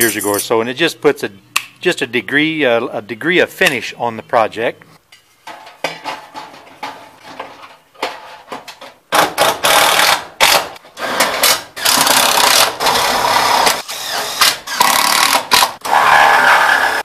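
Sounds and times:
parts clicking and knocking: 0:05.1 - 0:12.9
cordless drill driving screws: 0:09.6 - 0:15.7.

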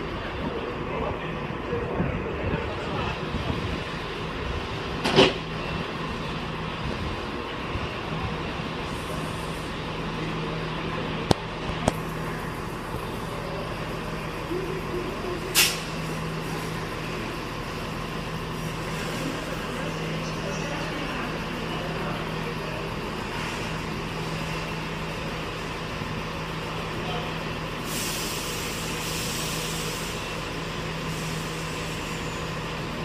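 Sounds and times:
diesel train engines humming: 0:00.0 - 0:33.0
brake air hiss: 0:08.8 - 0:09.8, 0:15.3 - 0:17.3, 0:27.8 - 0:32.7.

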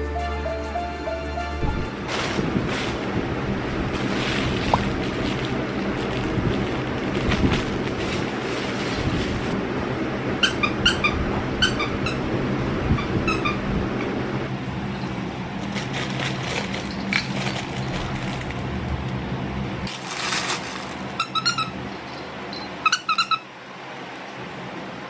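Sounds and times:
steady low hum: 0:00.0 - 0:22.9
squeaky dog toy squeaking: 0:10.4 - 0:12.3, 0:12.9 - 0:13.6, 0:21.2 - 0:21.8, 0:22.8 - 0:23.5.

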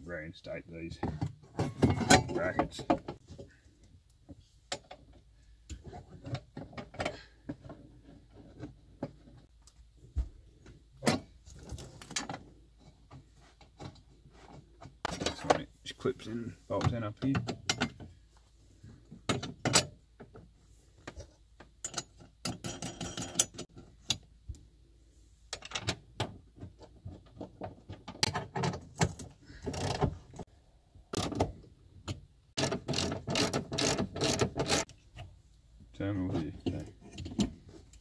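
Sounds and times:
hand ratchet clicking: 0:32.6 - 0:34.9.

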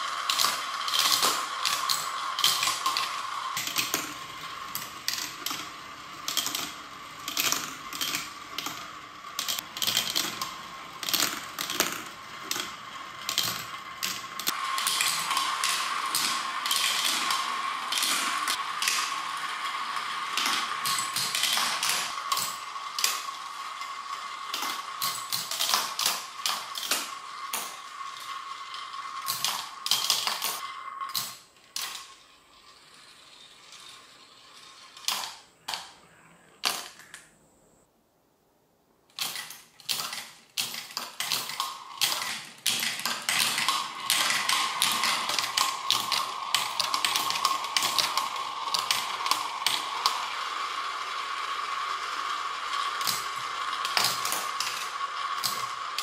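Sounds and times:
marbles clattering on plastic track: 0:00.0 - 0:37.3, 0:39.1 - 0:56.0
steady whirring hum: 0:00.0 - 0:56.0.

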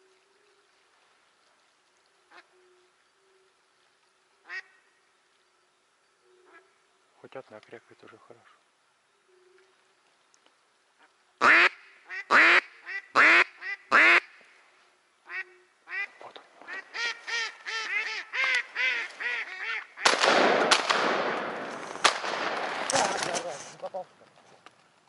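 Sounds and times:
duck quacking: 0:11.4 - 0:14.4.

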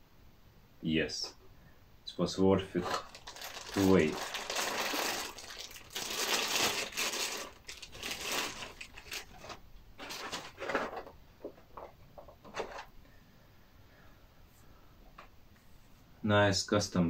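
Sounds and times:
plastic bag crinkling: 0:02.8 - 0:11.1.

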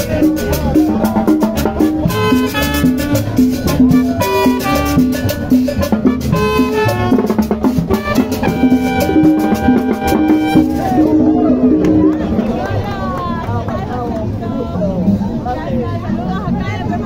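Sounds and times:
latin dance music: 0:00.0 - 0:13.2.

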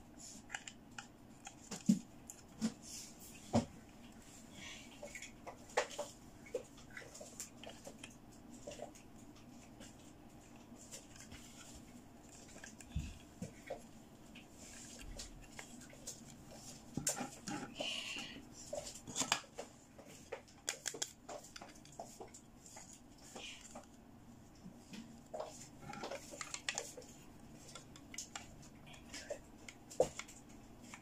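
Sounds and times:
plastic parts clicking and tapping: 0:20.3 - 0:22.4, 0:25.4 - 0:31.0.

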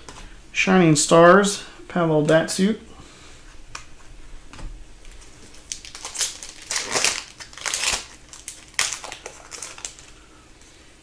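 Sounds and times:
foil wrapper crinkling: 0:05.0 - 0:10.3.

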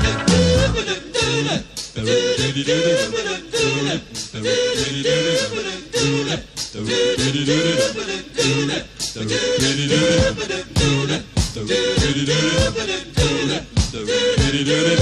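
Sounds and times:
drum hits: 0:00.0 - 0:00.8, 0:10.2 - 0:14.6
rock band playing live: 0:00.0 - 0:00.8
person singing: 0:00.0 - 0:06.2.

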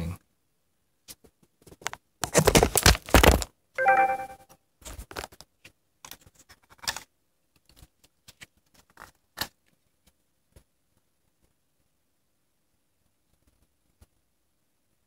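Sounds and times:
plastic chargers clicking and knocking: 0:01.7 - 0:03.5
brief pitched tone: 0:03.8 - 0:04.5.

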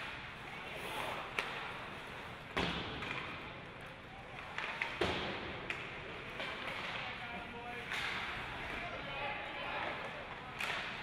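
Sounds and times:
arena crowd chatter: 0:06.0 - 0:11.0.

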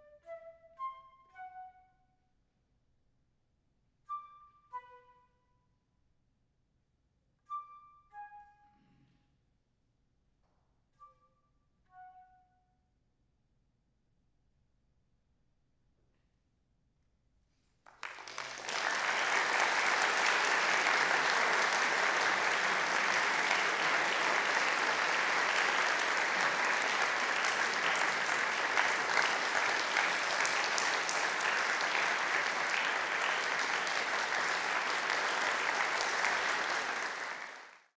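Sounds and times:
audience applauding: 0:17.9 - 0:38.0.

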